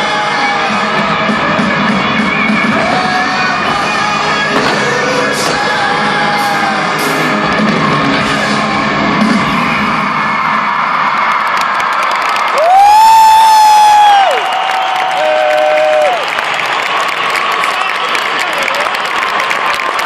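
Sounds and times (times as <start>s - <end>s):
live rock music with singing: 0.0s - 10.8s.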